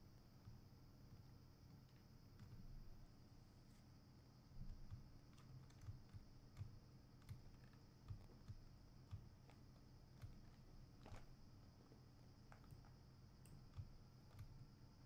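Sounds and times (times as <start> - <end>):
low steady hum: 0.0 - 15.0
mouse and keyboard clicks: 4.8 - 11.4.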